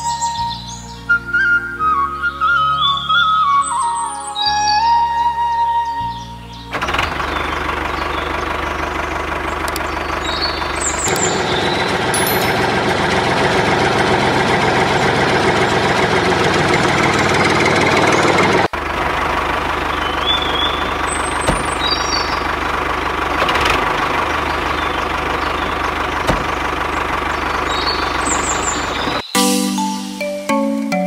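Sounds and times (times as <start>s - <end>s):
tractor engine running: 6.7s - 29.2s.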